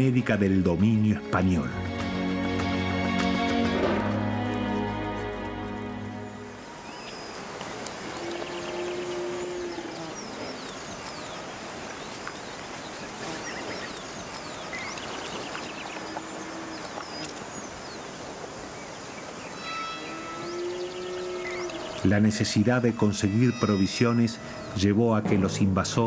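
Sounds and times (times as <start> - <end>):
background hiss: 0.8 - 26.0
small birds chirping: 6.1 - 25.2.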